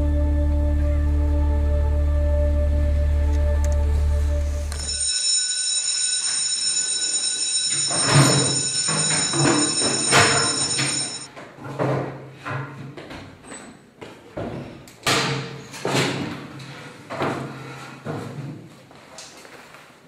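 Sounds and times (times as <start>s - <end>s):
electric bell ringing: 4.7s - 11.3s.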